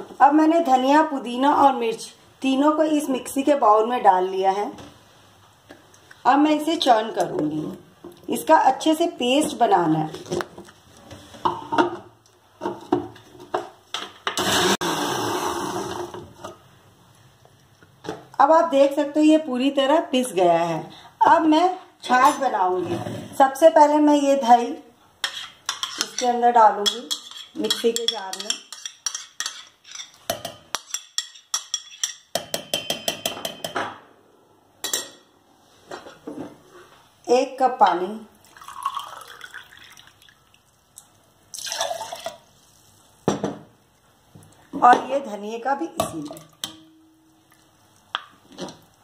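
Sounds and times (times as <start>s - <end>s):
mixer grinder grinding: 14.4s - 16.2s
spoon scraping: 25.2s - 32.3s.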